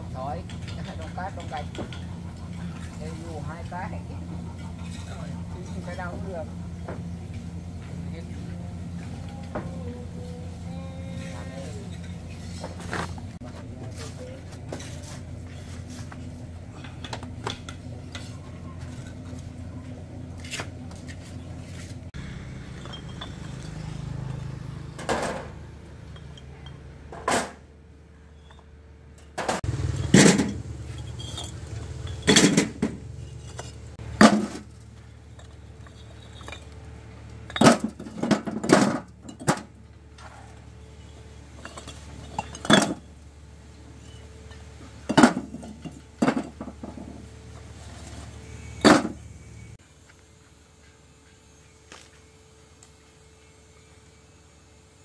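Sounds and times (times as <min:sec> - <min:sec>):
low motor hum: 0:00.0 - 0:54.5
sharp knocks and clinks: 0:22.6 - 0:24.4, 0:30.0 - 0:34.6.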